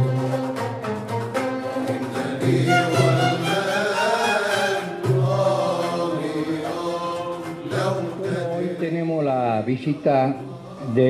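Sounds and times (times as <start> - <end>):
chant-like wavering melody: 1.6 - 8.7.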